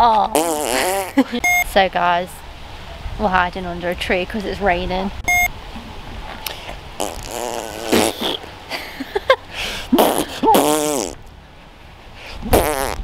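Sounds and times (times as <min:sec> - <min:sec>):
man blowing raspberries: 0:00.4 - 0:01.2, 0:06.4 - 0:08.5, 0:09.6 - 0:11.2, 0:12.3 - 0:13.0.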